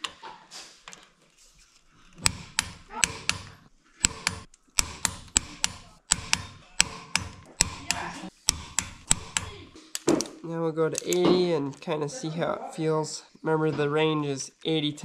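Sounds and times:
torque wrench ratchet clicking: 2.2 - 9.6.

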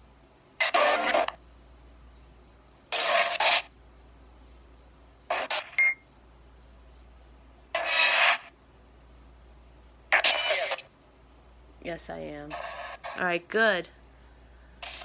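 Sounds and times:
radio static bursts: 0.6 - 1.4, 3.0 - 3.7, 5.3 - 5.8, 7.8 - 8.5, 10.1 - 10.9.

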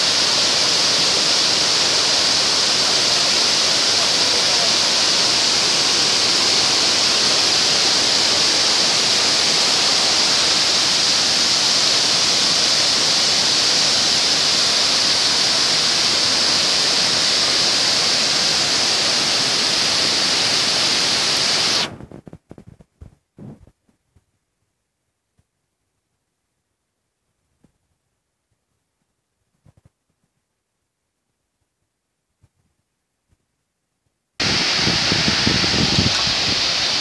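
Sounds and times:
waterfall rushing: 0.0 - 21.9, 34.4 - 37.0.

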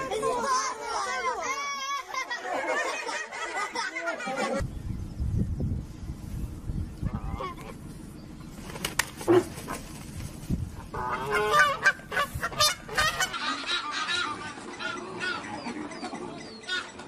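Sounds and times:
geese honking: 10.8 - 17.0.

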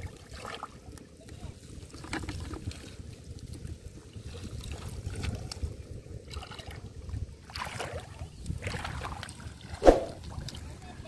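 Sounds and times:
wind rumble on microphone: 0.0 - 11.0
person wading through shallow water: 4.2 - 10.6.

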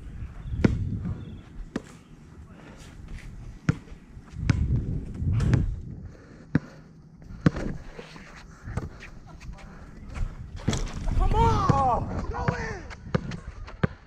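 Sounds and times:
low rumbling noise: 2.3 - 9.0.

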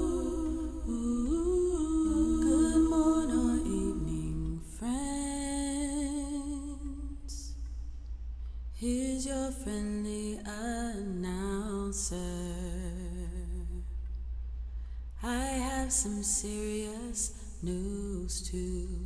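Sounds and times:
person singing wordless melody: 0.0 - 7.5
steady low hum: 0.0 - 19.0.

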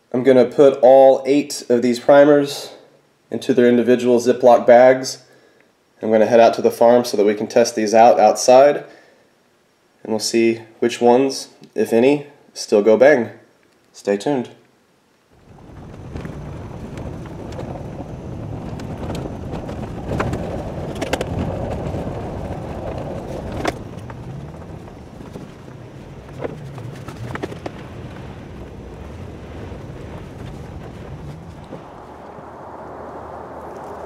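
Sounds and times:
knocks and rattles over bumps: 15.4 - 28.3
vehicle engine and tyre rumble: 15.4 - 34.0.

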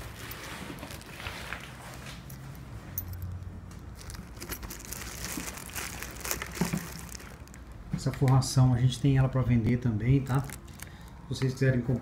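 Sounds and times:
plastic wrapping rustling: 0.0 - 2.7, 3.3 - 8.4, 10.1 - 11.3.

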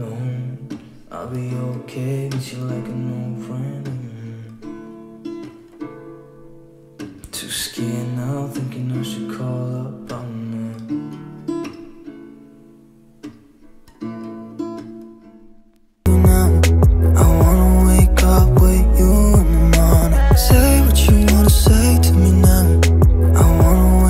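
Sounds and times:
acoustic guitar music: 0.0 - 24.0
music with heavy bass: 16.1 - 24.0.

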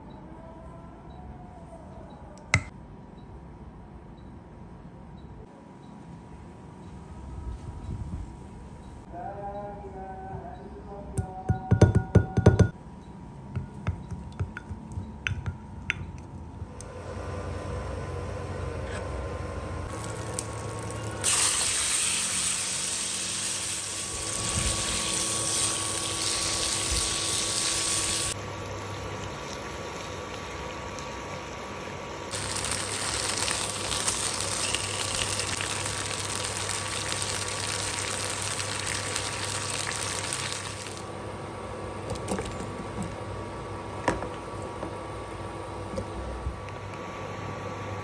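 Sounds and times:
food sizzling in frying pan: 19.9 - 28.4, 32.3 - 41.1.

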